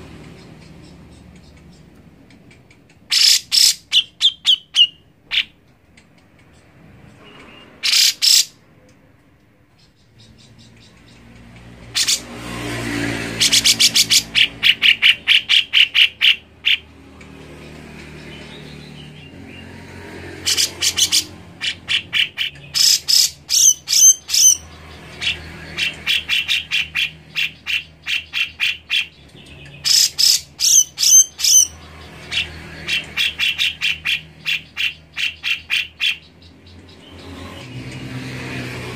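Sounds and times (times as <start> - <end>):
bulbul calling in sharp notes: 0.1 - 5.6, 7.8 - 8.6, 13.3 - 17.3, 20.4 - 37.1.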